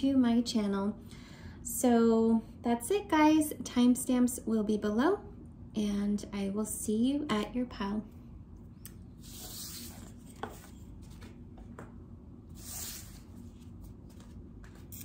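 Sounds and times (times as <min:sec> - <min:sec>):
cards sliding on wooden table: 0:09.2 - 0:11.9, 0:12.5 - 0:15.0.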